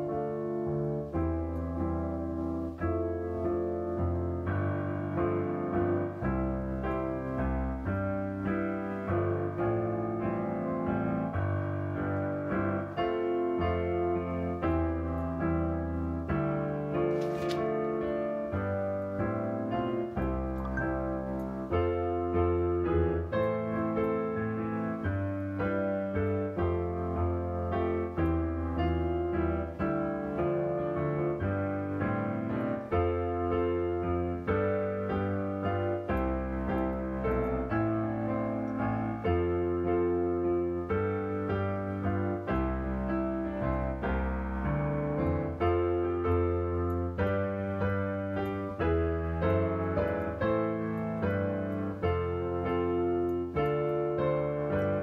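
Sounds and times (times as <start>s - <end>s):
piano music: 0.0s - 55.0s.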